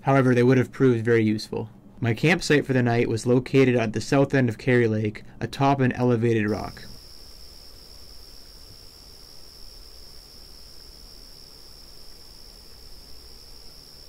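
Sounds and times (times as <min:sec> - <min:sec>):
crickets trilling: 0:06.5 - 0:14.0.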